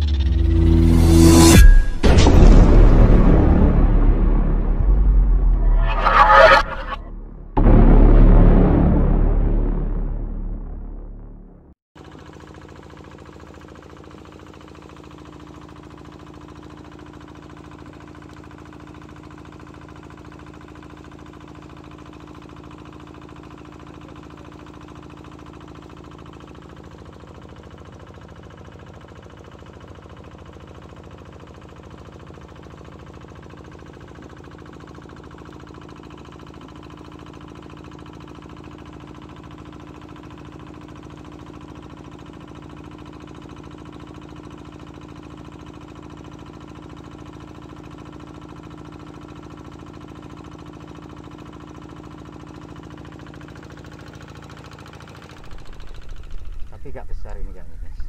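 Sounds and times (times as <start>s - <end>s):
boat engine running: 53.6s - 58.0s.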